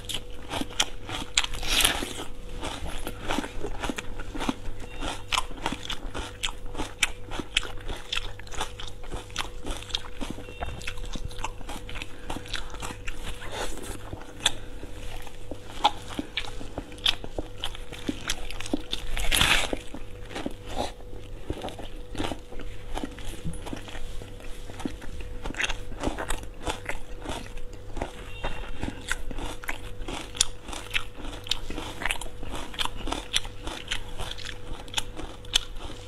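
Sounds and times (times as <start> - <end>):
crunching and chewing onion: 0.0 - 36.0.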